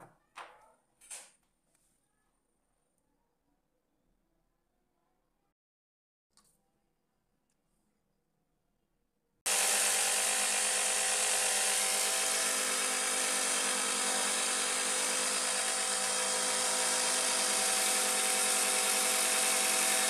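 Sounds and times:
drone motors whining: 0:09.5 - 0:20.0.

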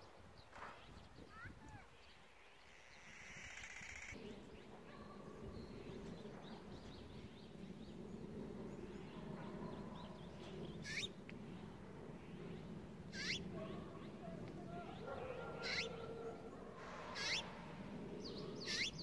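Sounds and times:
small birds chirping: 0:00.3 - 0:04.7, 0:05.4 - 0:19.0
sharp sweeping bird calls: 0:01.2 - 0:04.6, 0:10.0 - 0:12.5, 0:13.1 - 0:19.0.

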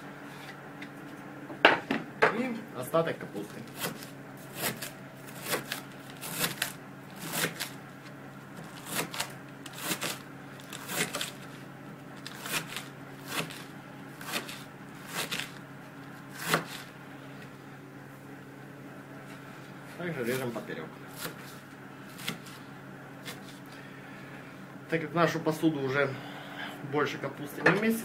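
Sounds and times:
steady low hum: 0:00.0 - 0:28.0
knife slicing cabbage: 0:03.6 - 0:07.8, 0:08.6 - 0:11.6, 0:12.2 - 0:15.6, 0:16.2 - 0:17.0, 0:21.1 - 0:23.6.

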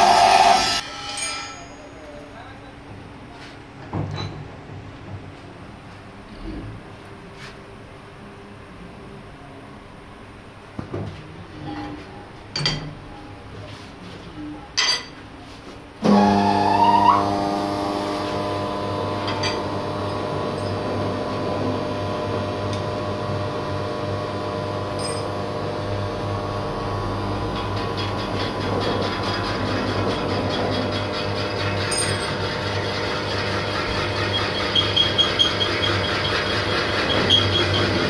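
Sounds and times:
metal lathe whining: 0:00.0 - 0:01.8, 0:16.0 - 0:38.0.

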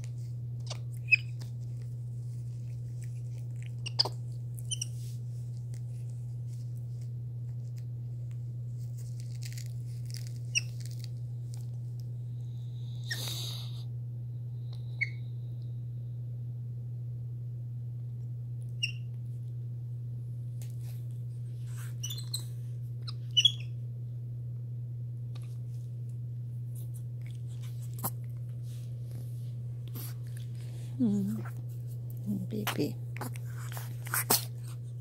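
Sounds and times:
steady low hum: 0:00.0 - 0:35.0
monkeys squeaking and chirping: 0:03.8 - 0:04.1, 0:23.3 - 0:23.6.

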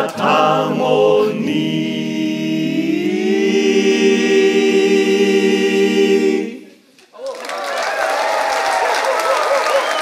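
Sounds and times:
male a cappella ensemble singing: 0:00.0 - 0:06.8.

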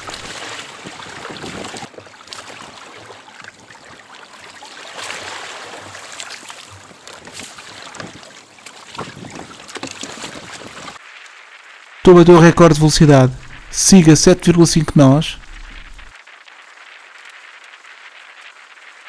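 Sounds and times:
water sloshing against hull: 0:00.0 - 0:11.0.

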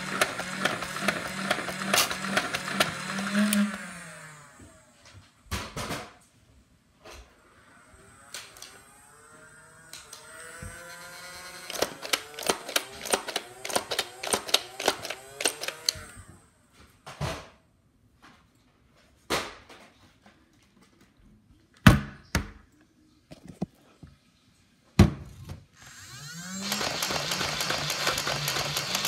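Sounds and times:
toy blaster firing darts: 0:00.0 - 0:03.8, 0:09.9 - 0:16.2, 0:26.0 - 0:29.0
toy blaster flywheels whining: 0:00.0 - 0:05.0, 0:07.4 - 0:16.3, 0:25.8 - 0:29.0.

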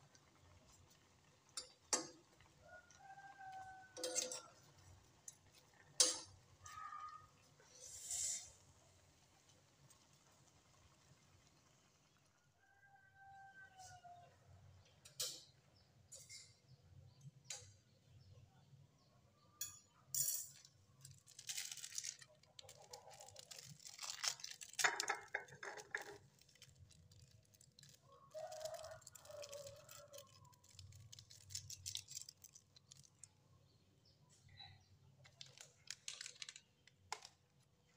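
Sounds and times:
foil sachets crinkling and tearing: 0:21.1 - 0:33.3, 0:35.3 - 0:37.3.

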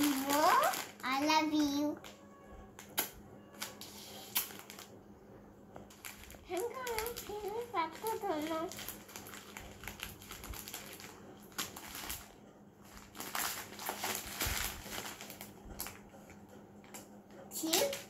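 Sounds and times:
plastic packet crinkling: 0:00.0 - 0:02.2, 0:03.6 - 0:05.0, 0:05.9 - 0:16.0.

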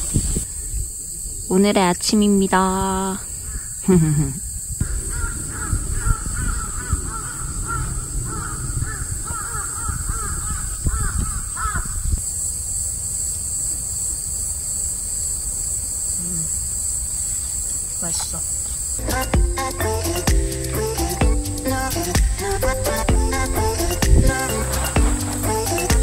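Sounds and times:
crows cawing: 0:03.4 - 0:03.8, 0:04.8 - 0:12.1.

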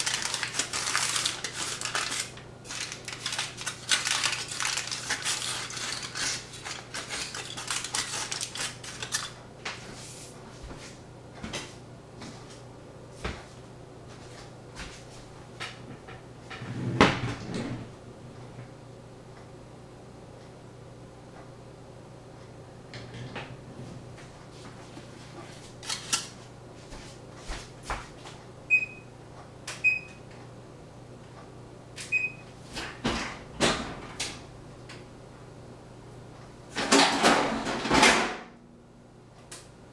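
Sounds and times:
kitchen utensils clicking and scraping: 0:00.0 - 0:09.4.

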